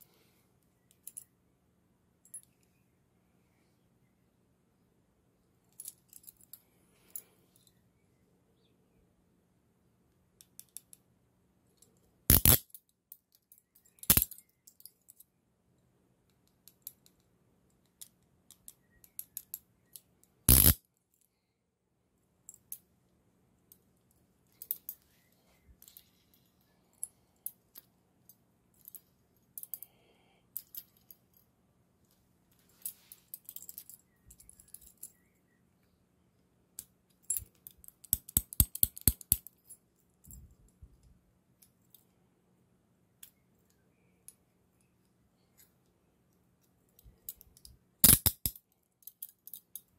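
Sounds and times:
small metal clinks: 0.0s - 1.4s, 2.2s - 2.8s, 5.6s - 8.0s, 10.4s - 11.1s, 11.7s - 15.3s, 16.3s - 21.4s, 22.4s - 22.9s, 23.6s - 31.5s, 32.1s - 35.9s, 36.8s - 42.2s, 43.2s - 49.9s
handcuff ratchet clicks: 12.3s - 12.8s, 13.8s - 14.9s, 20.5s - 20.8s, 37.3s - 39.6s, 47.3s - 49.9s.

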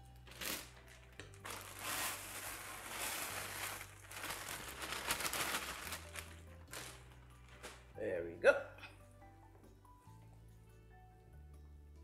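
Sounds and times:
plastic bag crinkling: 0.2s - 7.9s.

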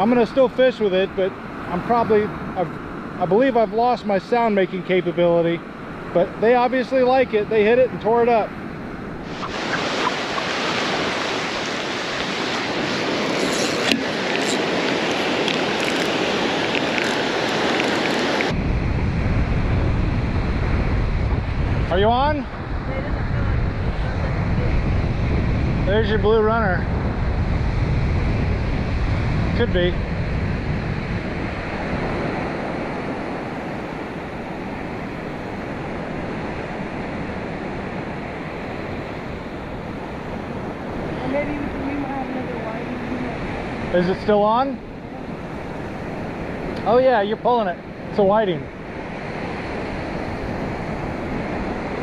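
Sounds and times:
surf breaking on a beach: 0.0s - 52.0s
wind buffeting microphone: 5.6s - 52.0s.

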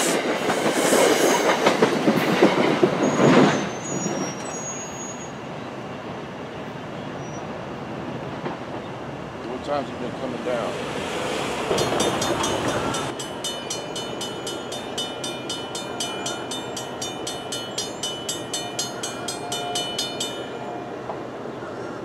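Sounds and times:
car driving across tracks: 7.1s - 22.0s
railroad crossing bell ringing: 11.6s - 21.2s.

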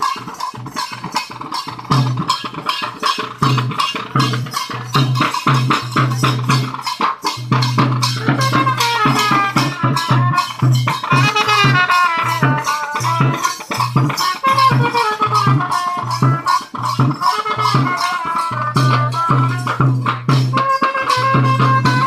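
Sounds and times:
fast steady drumming: 0.0s - 22.0s
high melody line: 7.7s - 22.0s.

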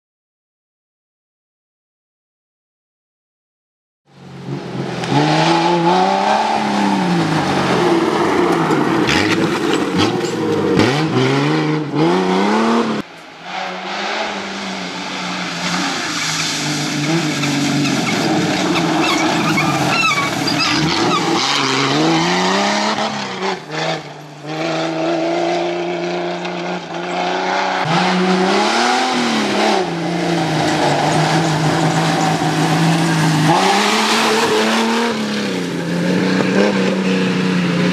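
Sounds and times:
engine revving hard: 5.0s - 14.8s, 16.8s - 37.9s
tyres on loose dirt and gravel: 6.5s - 11.4s, 13.0s - 37.9s.

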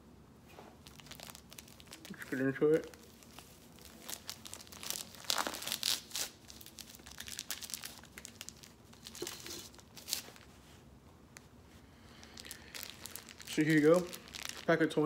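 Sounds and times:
cigar packaging crinkling: 0.8s - 10.5s, 12.1s - 14.8s.

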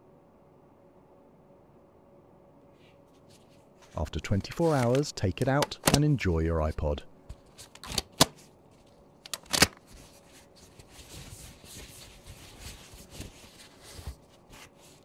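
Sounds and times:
wrapping rustling and crinkling: 3.1s - 5.2s, 8.7s - 15.0s.

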